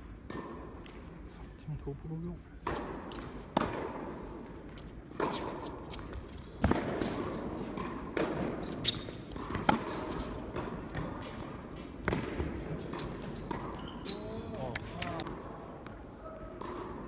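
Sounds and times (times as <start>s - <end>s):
ball bouncing on court: 2.6s - 4.2s, 4.8s - 16.0s
racket strings hitting ball: 2.6s - 4.2s, 6.6s - 13.6s.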